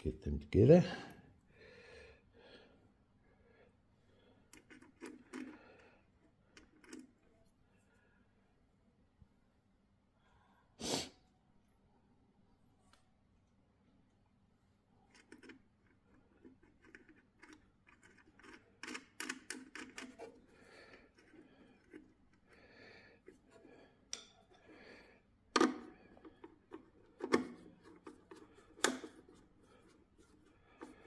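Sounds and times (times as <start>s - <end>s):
screwdriver turning: 4.6s - 5.6s, 6.6s - 7.2s, 15.1s - 22.5s, 25.6s - 31.0s.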